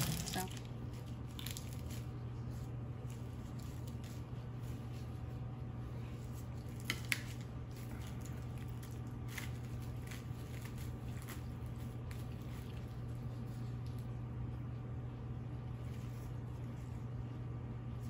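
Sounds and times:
plastic crinkling: 0.0 - 4.8
steady low hum: 0.0 - 18.0.

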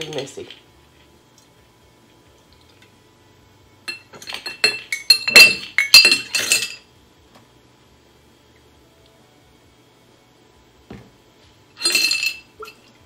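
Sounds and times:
metal funnel clinking on glass jars: 3.9 - 6.8, 11.8 - 12.9.

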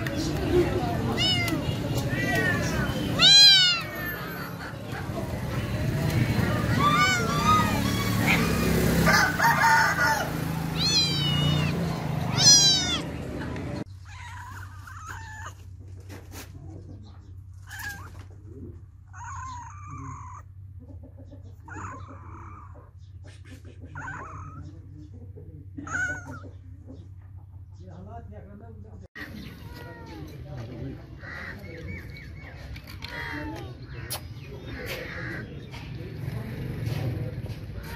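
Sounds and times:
cats meowing: 0.6 - 9.1, 10.5 - 15.8, 19.1 - 20.4, 24.0 - 24.7, 25.8 - 26.5, 29.5 - 30.5.

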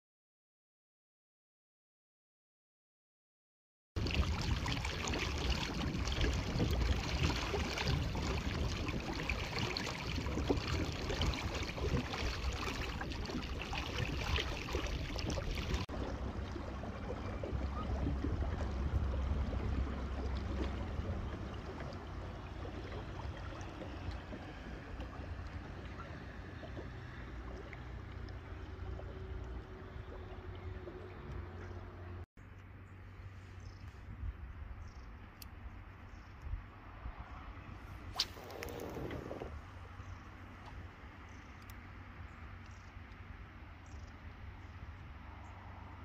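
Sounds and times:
wind and water rushing: 4.0 - 32.2, 36.5 - 43.7
wind rumble on microphone: 4.0 - 32.2, 33.5 - 46.0.

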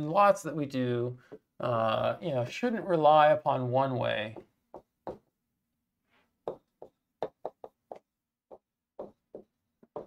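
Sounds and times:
marker writing on whiteboard: 4.3 - 5.4, 6.4 - 10.0.

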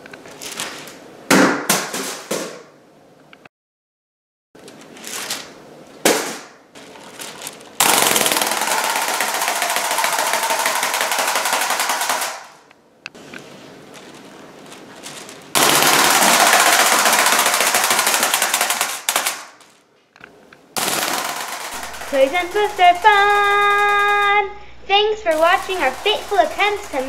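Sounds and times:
wind-up toy bird wings rattling: 7.8 - 12.5.

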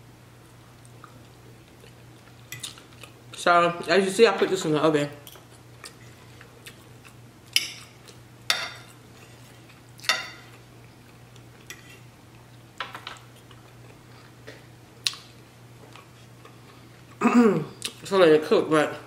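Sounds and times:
low steady hum: 0.0 - 19.0
fork scraping a plate: 11.7 - 12.1.

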